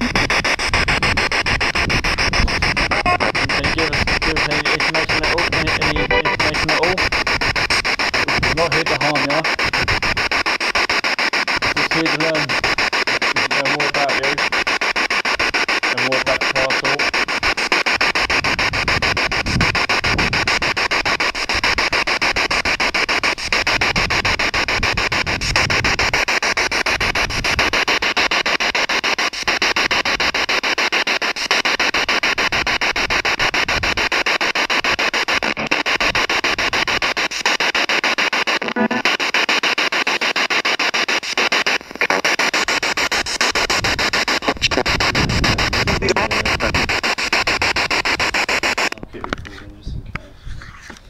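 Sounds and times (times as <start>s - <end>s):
brief pitched radio snatch: 0.0s - 24.8s
pulsing radio static: 0.0s - 49.9s.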